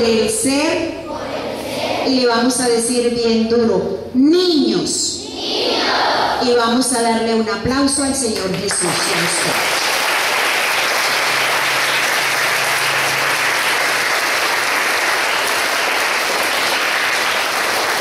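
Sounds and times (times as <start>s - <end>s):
children clapping: 8.4s - 18.0s.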